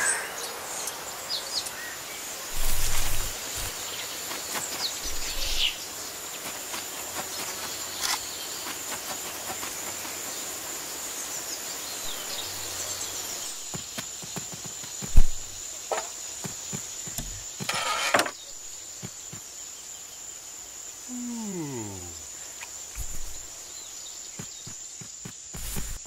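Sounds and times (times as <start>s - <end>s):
insects chirring: 0.0s - 26.0s
short rustle: 2.5s - 10.0s.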